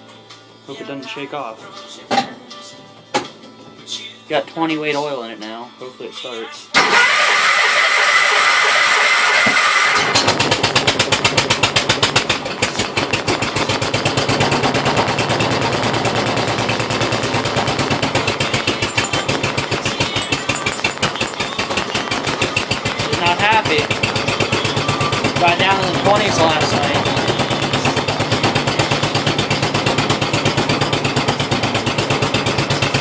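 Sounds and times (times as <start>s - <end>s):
tractor engine starting and running: 6.8s - 33.0s.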